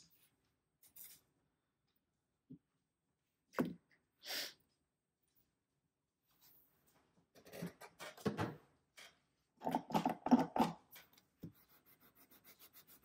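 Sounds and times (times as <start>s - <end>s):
rubbing and scratching of supplies: 6.3s - 13.0s.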